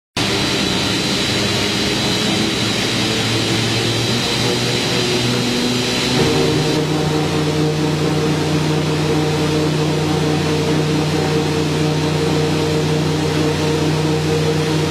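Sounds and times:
lathe mechanical drone: 5.2 - 8.5
thin constant whine: 6.1 - 7.8.

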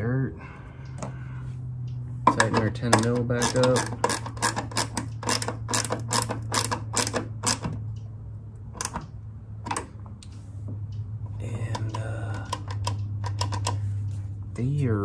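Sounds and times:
steady low hum: 0.0 - 15.0
ratchet wrench clicking: 2.3 - 8.0.

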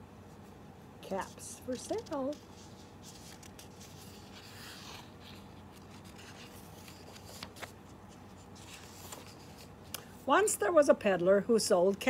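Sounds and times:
book pages turning: 1.3 - 9.9.

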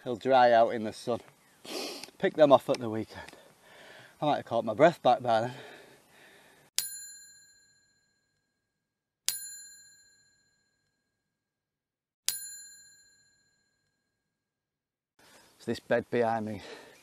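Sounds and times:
bell-like ding: 6.8 - 8.6, 9.3 - 11.1, 12.3 - 14.2.

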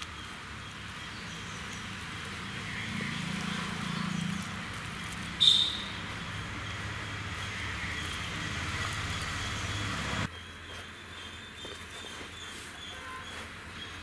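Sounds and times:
birds chirping: 0.0 - 14.0
loud high bird chirp: 5.3 - 6.8.

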